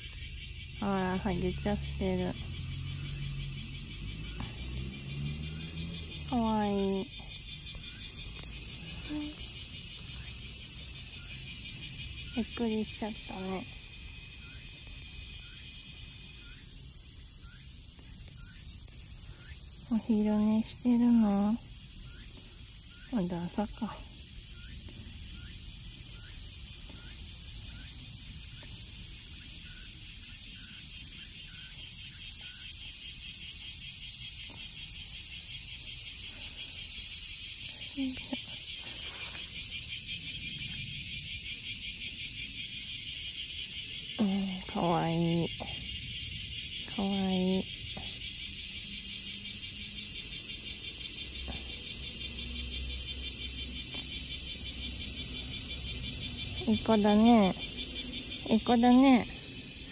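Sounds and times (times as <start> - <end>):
insects chirring: 0.0 - 59.9.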